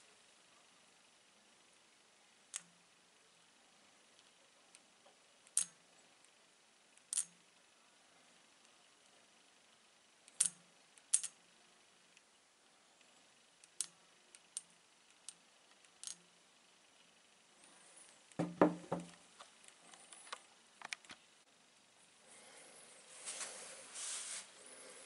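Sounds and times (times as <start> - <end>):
magnet clicking against stones: 10.2 - 11.4, 13.6 - 16.2.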